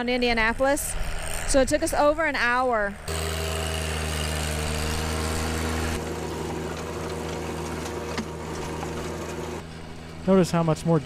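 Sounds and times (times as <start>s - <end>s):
tractor diesel engine running: 1.1s - 11.0s.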